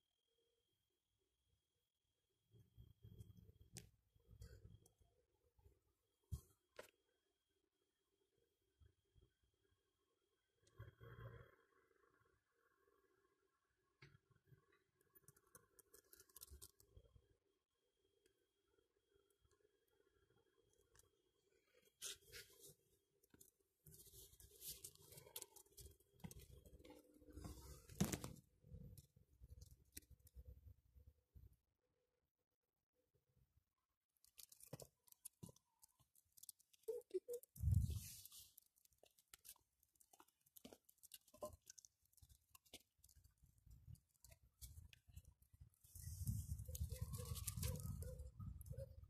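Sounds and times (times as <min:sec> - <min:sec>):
faint clicks and taps: 0:34.2 - 0:45.4.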